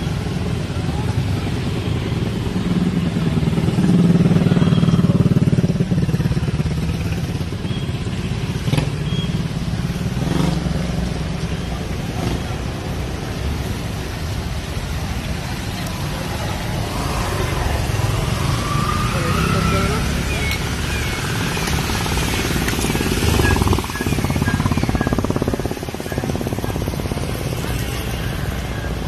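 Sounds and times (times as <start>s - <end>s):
street traffic: 0.0s - 29.0s.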